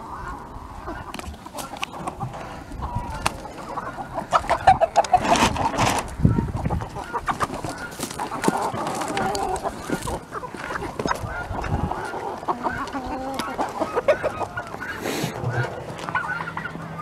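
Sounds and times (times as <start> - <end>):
chickens and turkeys clucking: 0.0 - 17.0.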